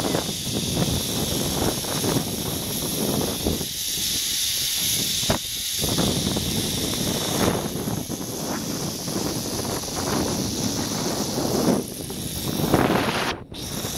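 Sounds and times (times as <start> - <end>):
trolley hissing along cable: 0.0 - 13.9
wind buffeting microphone: 0.0 - 13.9.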